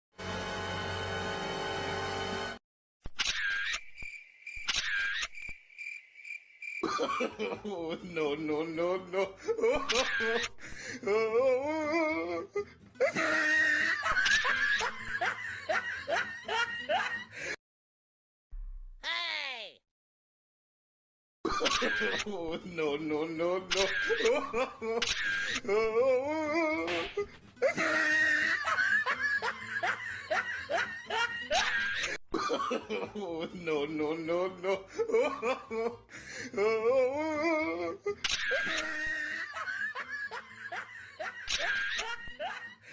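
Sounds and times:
laughter bursts: 13.0s - 17.5s, 26.7s - 33.3s, 37.6s - 42.9s.

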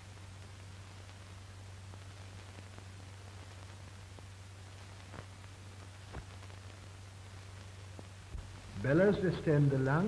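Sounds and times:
film hiss: 0.0s - 10.0s
faint pops: 1.9s - 6.9s.

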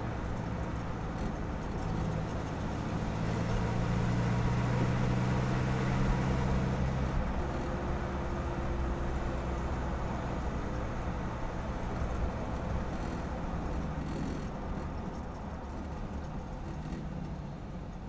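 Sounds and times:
diesel engine and exhaust running: 0.0s - 18.0s
tyre and road noise: 0.0s - 18.0s.

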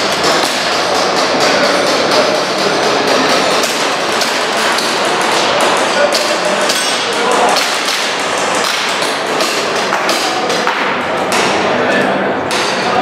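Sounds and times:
pellets clacking on targets: 0.0s - 11.8s, 12.4s - 13.0s
echoing hall noise: 0.0s - 13.0s.

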